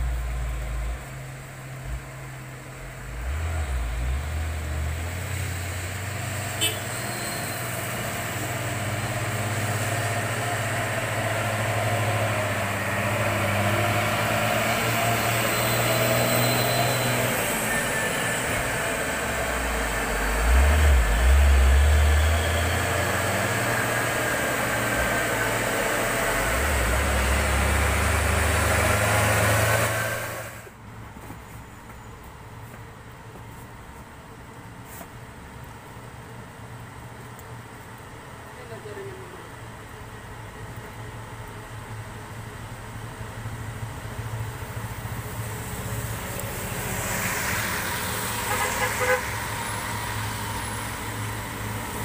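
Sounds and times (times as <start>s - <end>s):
truck diesel engine labouring: 0.0s - 30.8s, 43.5s - 52.0s
wet tyres: 0.0s - 38.4s, 39.4s - 52.0s.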